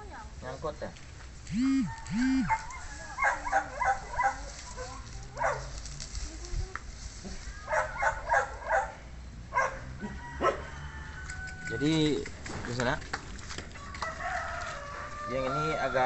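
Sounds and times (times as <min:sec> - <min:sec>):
dog barking: 0:01.9 - 0:05.7, 0:07.7 - 0:10.7.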